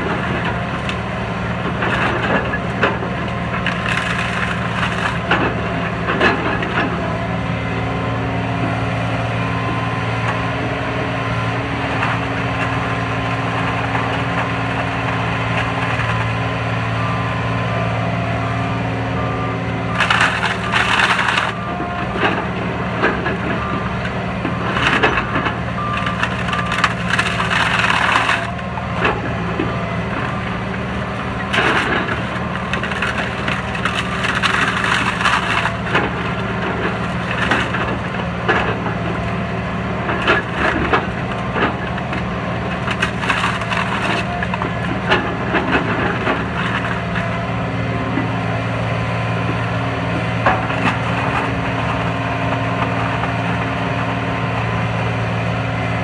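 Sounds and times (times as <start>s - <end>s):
wood cracking and splintering: 0.0s - 7.0s, 19.9s - 55.6s
diesel engine running: 0.0s - 56.0s.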